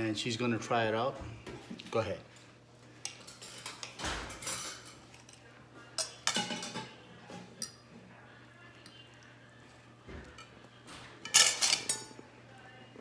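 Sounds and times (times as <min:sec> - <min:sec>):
knife and fork scraping a plate: 0:11.2 - 0:12.2.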